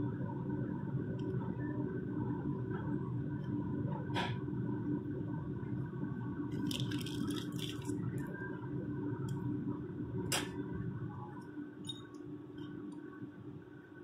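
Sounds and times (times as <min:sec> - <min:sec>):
steady low hum: 0:00.0 - 0:14.0
plastic bag rustling: 0:06.6 - 0:07.9.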